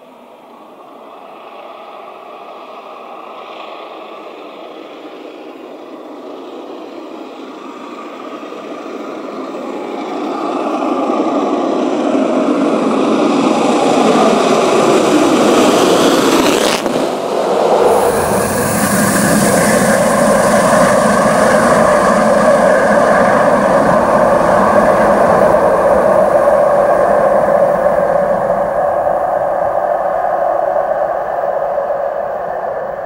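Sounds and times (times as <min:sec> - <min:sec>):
steam locomotive chimney roar: 0:00.0 - 0:33.0.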